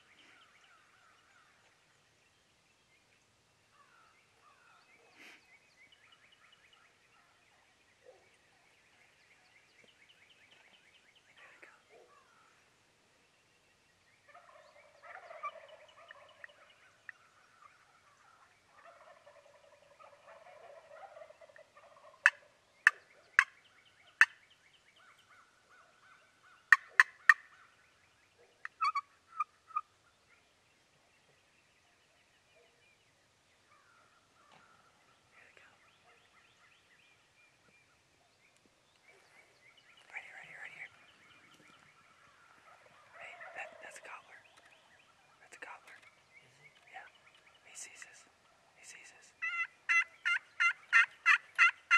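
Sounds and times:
wild turkey gobbling: 0:14.2 - 0:24.4, 0:25.0 - 0:30.1, 0:39.8 - 0:46.0, 0:46.7 - 0:51.9.

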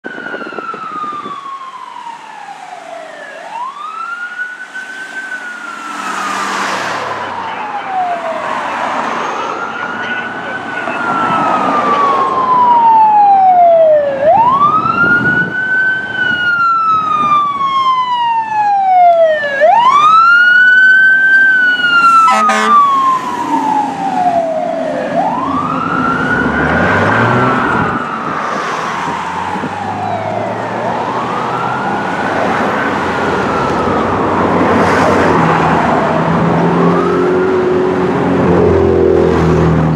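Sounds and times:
fire engine siren wailing: 0:00.0 - 0:39.9
truck engine accelerating: 0:19.9 - 0:39.9.

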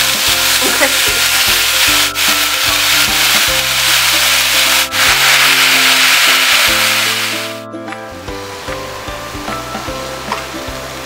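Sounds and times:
meat sizzling on grill: 0:00.0 - 0:07.6
background music: 0:00.0 - 0:11.0.

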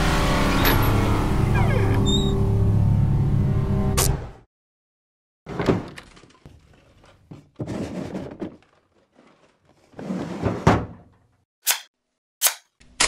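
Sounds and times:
rustling: 0:06.3 - 0:10.0
sharp click: 0:11.6 - 0:13.0.

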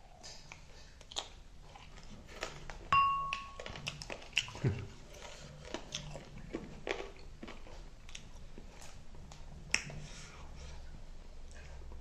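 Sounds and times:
chewing and mouth smacking: 0:00.0 - 0:12.0
wet mouth clicks: 0:09.7 - 0:10.1.

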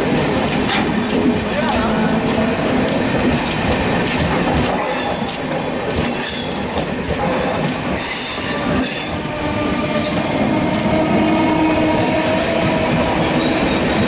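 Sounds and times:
train rushing past: 0:00.0 - 0:14.0
high wheel squeal: 0:08.0 - 0:14.0.

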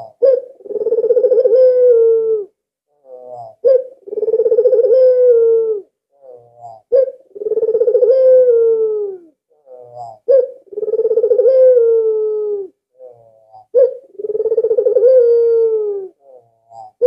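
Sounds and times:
dove cooing: 0:00.0 - 0:17.0.

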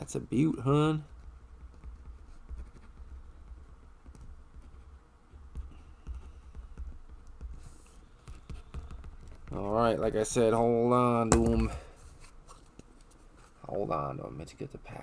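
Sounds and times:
pen scratching on paper: 0:01.0 - 0:09.4.

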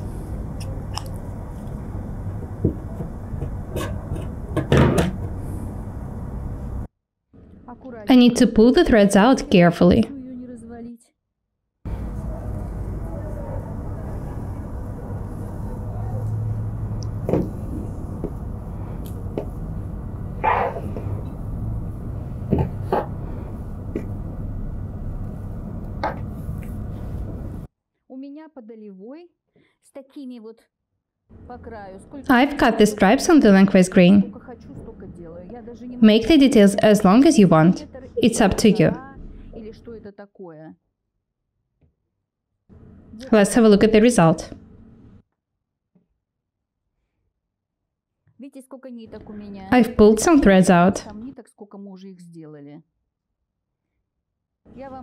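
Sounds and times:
low room hum: 0:00.0 - 0:10.9, 0:11.9 - 0:27.7, 0:31.3 - 0:40.0, 0:42.7 - 0:45.2, 0:49.1 - 0:51.4
steady low rumble: 0:11.9 - 0:27.7.

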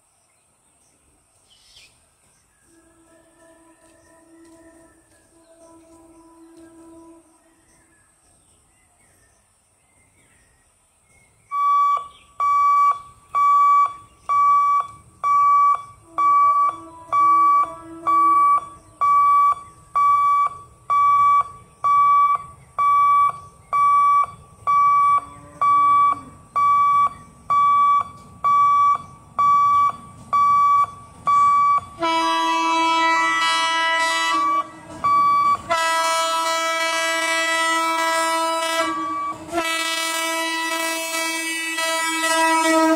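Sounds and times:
train horn blasts: 0:02.7 - 0:07.9, 0:15.6 - 0:19.4, 0:24.8 - 0:26.8, 0:31.3 - 0:42.9
level crossing alarm beeps: 0:11.5 - 0:32.0, 0:34.5 - 0:35.7.

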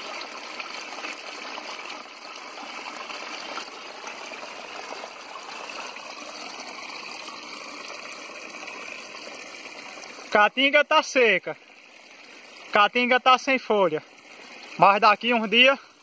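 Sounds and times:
small waterfall splashing into pool: 0:00.0 - 0:16.0.

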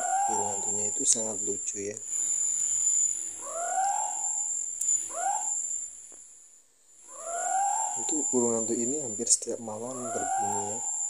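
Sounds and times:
owl hooting: 0:00.0 - 0:06.0, 0:07.0 - 0:11.0.

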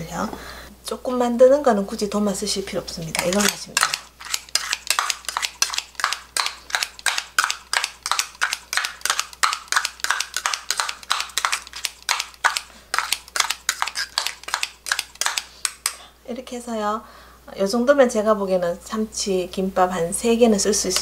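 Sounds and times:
scissors snipping in a metal cup: 0:03.1 - 0:07.2.

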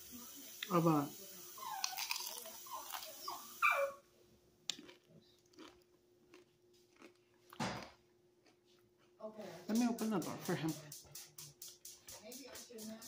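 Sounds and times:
chewing crispy food: 0:01.6 - 0:03.6, 0:04.7 - 0:09.2.

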